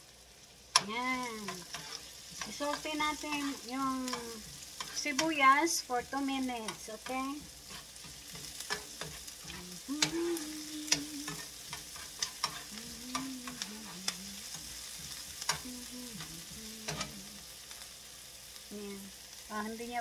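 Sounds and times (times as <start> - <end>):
onions sizzling in oil: 0.0 - 20.0
metal utensil scraping pan: 0.8 - 5.6, 6.5 - 15.6, 16.8 - 17.2.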